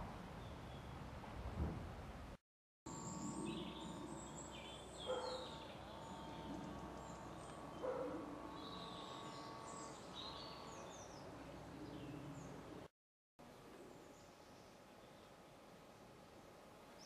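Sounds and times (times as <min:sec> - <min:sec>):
small birds chirping: 0:02.9 - 0:12.9.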